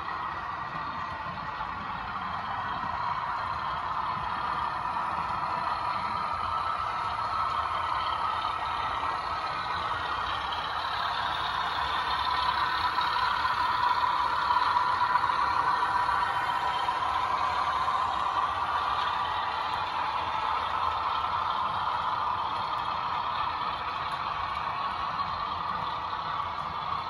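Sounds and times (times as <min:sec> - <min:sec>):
model train diesel engine sound: 0:00.0 - 0:27.0
model train rolling on track: 0:00.0 - 0:27.0.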